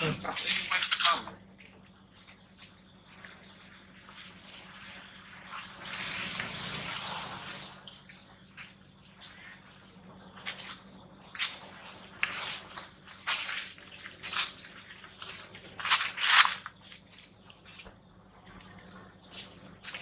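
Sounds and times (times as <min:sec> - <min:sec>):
dry leaves rustling and crackling: 0:10.5 - 0:17.8.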